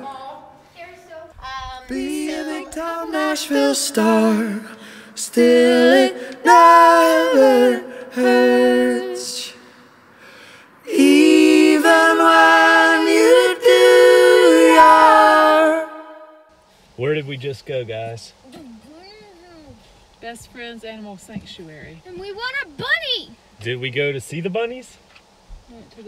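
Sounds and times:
high voice singing: 1.8s - 9.7s, 10.8s - 16.3s.

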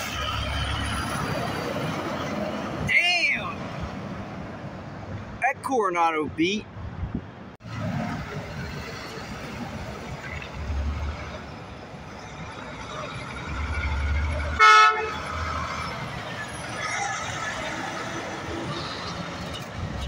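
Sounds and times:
diesel truck engine rumbling: 0.0s - 20.0s
air horn toot: 14.6s - 15.2s.

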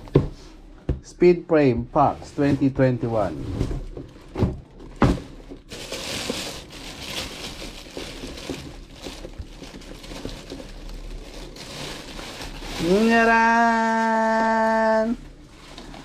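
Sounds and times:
plastic bag crinkling: 3.8s - 16.0s.

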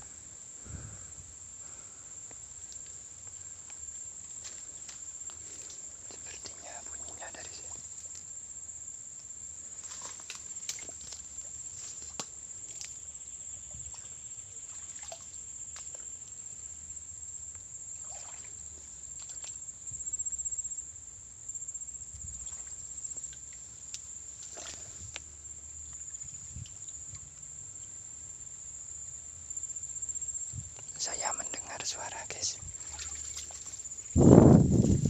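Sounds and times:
rustling through undergrowth: 9.7s - 12.8s, 32.8s - 35.0s.

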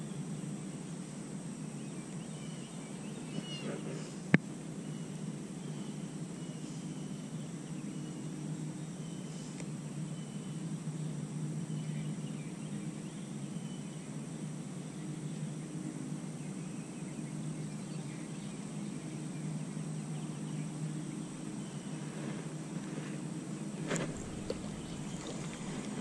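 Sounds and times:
steady low hum: 17.5s - 26.0s.

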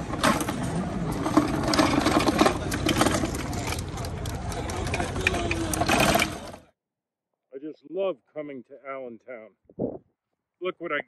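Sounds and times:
hand truck rattling on asphalt: 0.0s - 6.7s.

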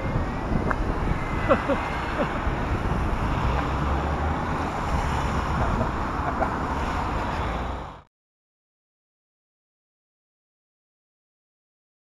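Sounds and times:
wind buffeting microphone: 0.0s - 7.4s.

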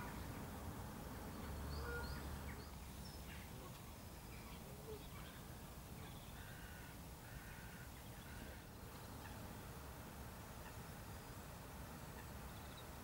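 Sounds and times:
harsh caw-like bird calls: 6.4s - 8.7s.

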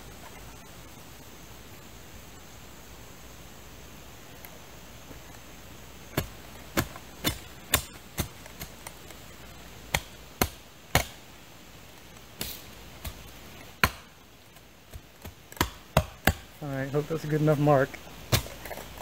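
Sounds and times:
tool striking the ground: 14.9s - 16.5s, 18.3s - 19.0s.

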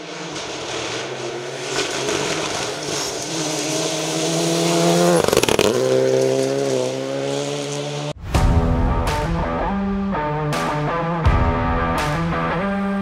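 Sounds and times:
gravel hissing from tyres: 0.0s - 6.8s
rally car engine passing: 0.0s - 8.2s.

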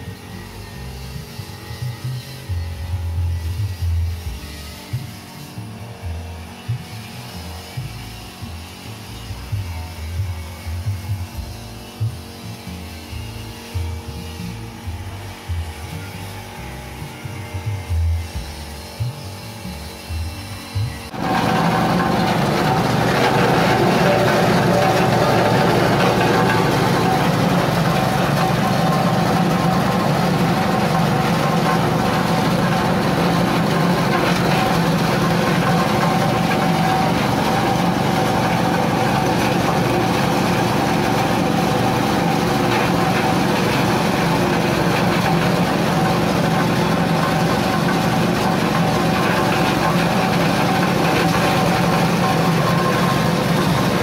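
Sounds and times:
husk shredder engine running: 20.9s - 54.0s.

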